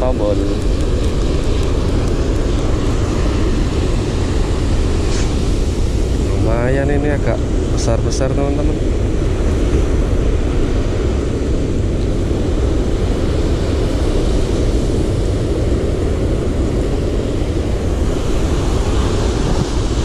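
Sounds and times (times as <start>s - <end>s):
breaking surf: 0.0s - 20.0s
wind rumbling on microphone: 0.0s - 20.0s.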